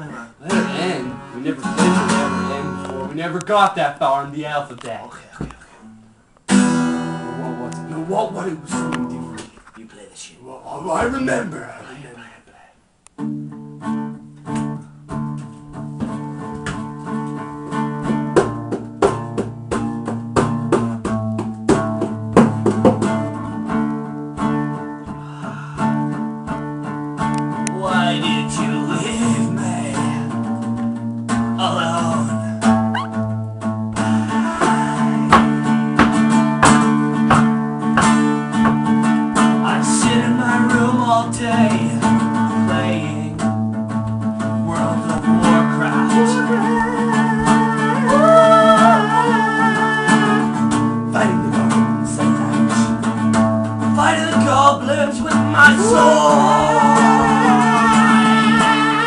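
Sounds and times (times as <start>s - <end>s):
man singing: 0.0s - 2.9s, 27.7s - 30.5s, 31.6s - 32.7s, 34.0s - 35.7s, 39.5s - 43.6s, 44.4s - 53.1s, 53.8s - 59.0s
acoustic guitar strumming: 0.0s - 5.0s, 5.6s - 9.6s, 13.2s - 59.0s.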